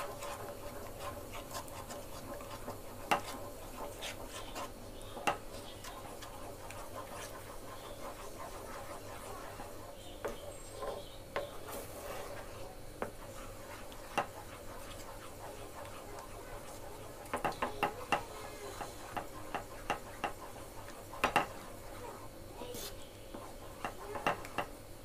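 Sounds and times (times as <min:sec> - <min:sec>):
spatula scraping metal pan: 0:00.0 - 0:24.5.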